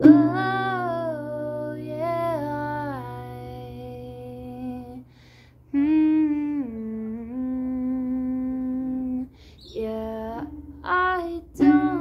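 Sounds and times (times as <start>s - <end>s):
woman singing wordless notes: 0.0s - 12.0s
woman breathing: 5.0s - 5.7s, 9.3s - 9.7s.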